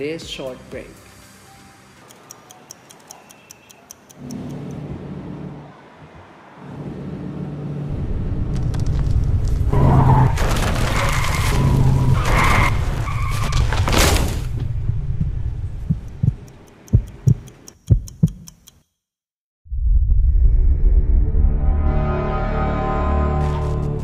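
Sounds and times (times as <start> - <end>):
wall clock ticking: 2.0 - 4.8, 15.2 - 18.9
car tyres screeching: 4.3 - 14.0
deep earthquake rumble: 7.9 - 13.0, 13.6 - 16.5, 19.6 - 21.8.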